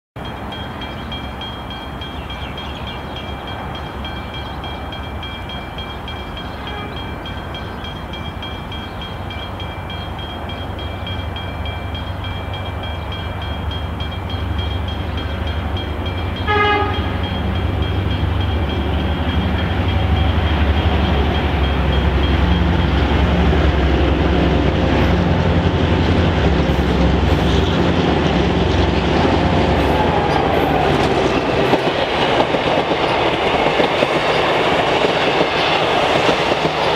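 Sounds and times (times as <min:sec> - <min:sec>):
passenger train passing: 0:00.2 - 0:36.9
locomotive horn blast: 0:06.6 - 0:07.2, 0:16.4 - 0:17.4.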